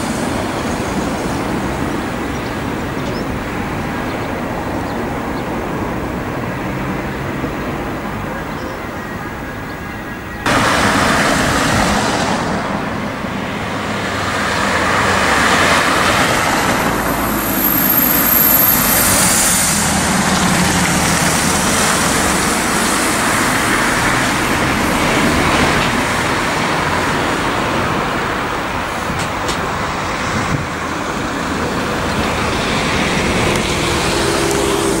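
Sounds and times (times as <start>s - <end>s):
road traffic: 0.0s - 35.0s
vehicle driving past close by: 10.5s - 27.0s, 30.3s - 35.0s.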